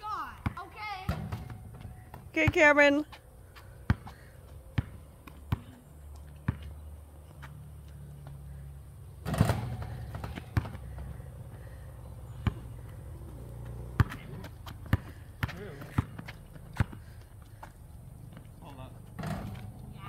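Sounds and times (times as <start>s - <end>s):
basketball bouncing on hard court: 3.9s - 4.2s, 4.8s - 5.8s, 9.3s - 11.7s, 12.3s - 13.0s, 13.6s - 17.2s.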